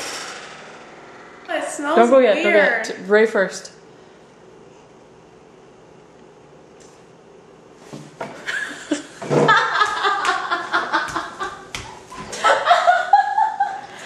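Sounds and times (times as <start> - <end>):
people laughing: 8.4 - 14.0.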